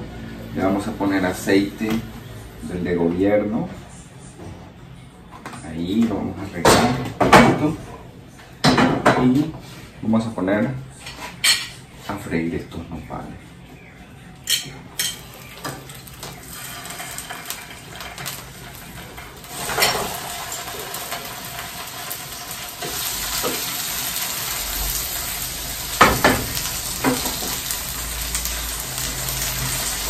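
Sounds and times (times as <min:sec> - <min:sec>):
food sizzling in hot oil: 0:15.0 - 0:30.0.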